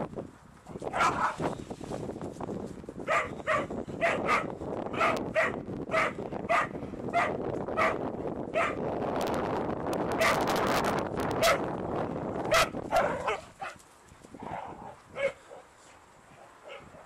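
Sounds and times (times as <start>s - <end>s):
dogs barking in play: 0.9s - 1.5s, 3.1s - 8.9s, 11.4s - 11.7s, 12.5s - 13.8s, 14.4s - 17.0s.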